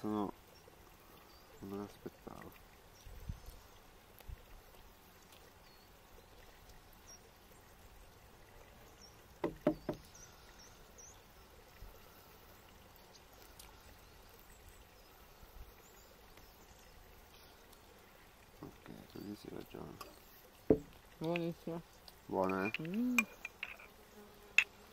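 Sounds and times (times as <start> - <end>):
tableware knocking on wooden table: 9.4 - 10.0, 20.7 - 20.9.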